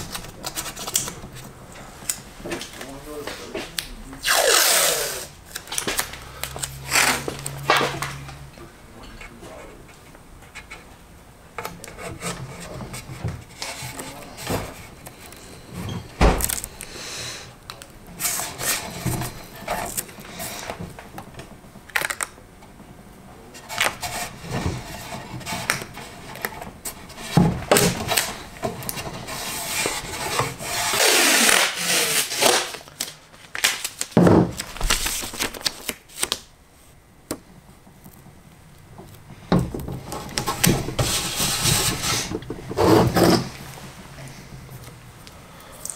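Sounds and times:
tape rubbed down by hand: 4.2s - 5.6s, 29.2s - 32.8s, 40.4s - 43.6s
tape tearing off roll: 4.2s - 8.3s, 27.7s - 36.5s, 40.1s - 43.8s.

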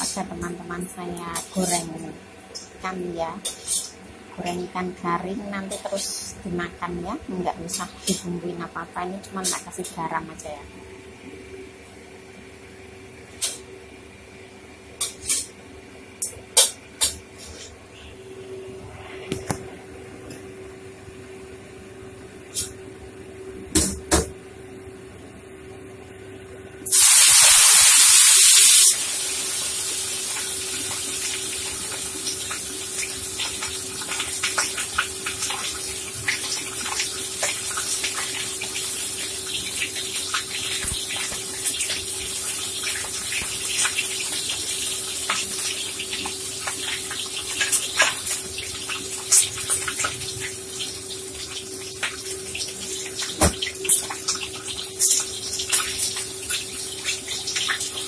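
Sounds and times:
fish sizzling in hot oil: 26.9s - 58.0s.

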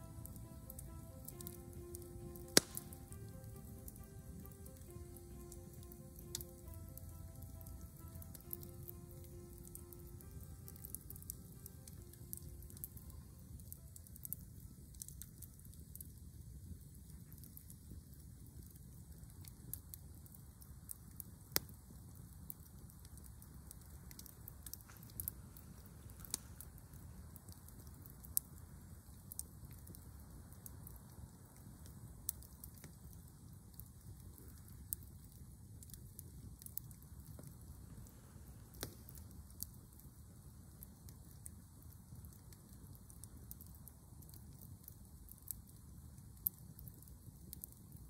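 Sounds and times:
low steady rumble: 0.0s - 14.9s
campfire crackling and popping: 0.0s - 48.0s
faint low rumble: 0.0s - 48.0s.

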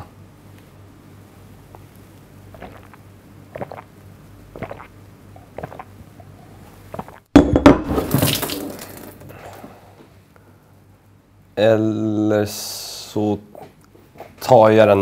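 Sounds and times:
man gulping beer: 2.5s - 3.9s, 4.5s - 6.0s, 6.9s - 7.3s
glass knocked down on table: 7.4s - 8.6s.

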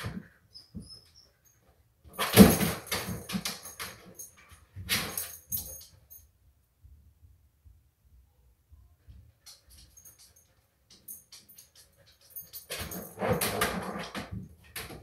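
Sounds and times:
dog scuffling and clattering: 2.1s - 6.1s, 9.4s - 15.0s.

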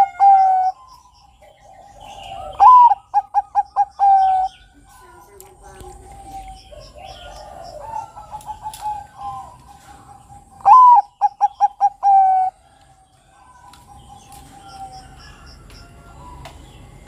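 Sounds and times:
dove cooing: 0.0s - 16.8s
dove song: 0.0s - 17.0s.

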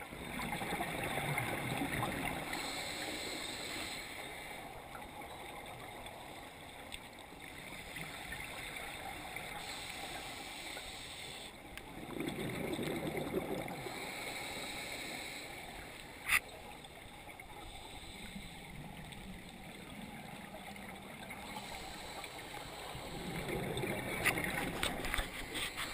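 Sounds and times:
scuba exhaust bubbles gurgling: 0.0s - 11.1s, 11.7s - 16.0s, 16.8s - 25.9s.

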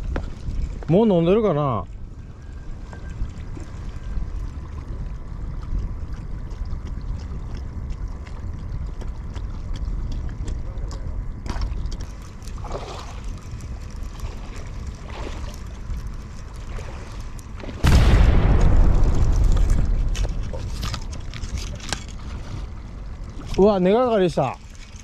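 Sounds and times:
wind buffeting microphone: 0.0s - 24.6s
faint clicks and rustles: 19.0s - 23.7s.

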